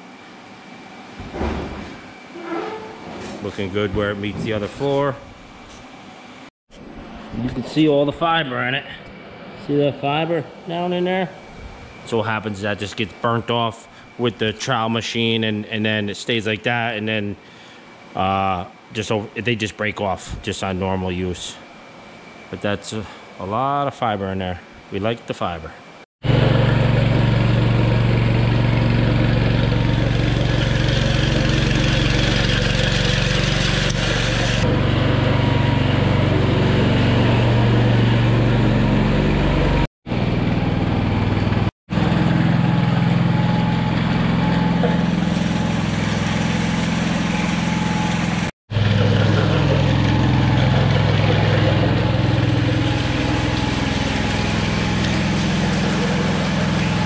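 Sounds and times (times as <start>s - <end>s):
small gasoline engine running: 26.2s - 57.0s.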